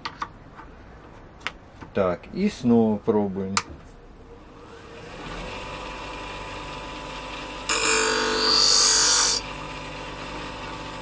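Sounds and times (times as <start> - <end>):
bench grinder humming: 4.5 - 11.0
blade grinding on wheel: 7.7 - 9.4.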